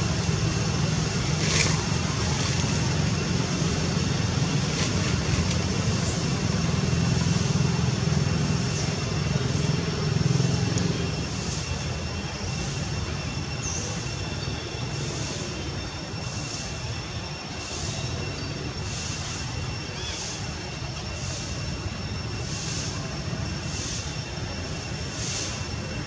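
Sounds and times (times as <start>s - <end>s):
steady low rumble: 0.0s - 13.6s
faint high whine: 0.0s - 26.0s.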